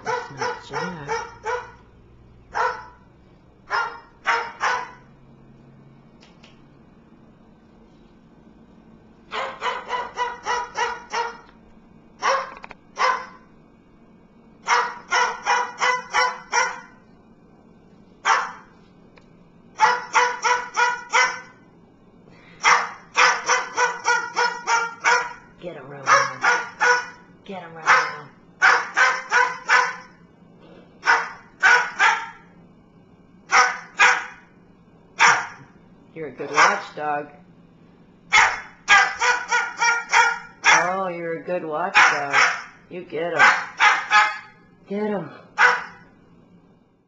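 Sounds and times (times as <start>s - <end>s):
cockatoo imitating dog barks: 0.0s - 1.8s, 14.7s - 16.9s, 22.8s - 25.4s, 26.0s - 27.2s, 38.3s - 40.9s.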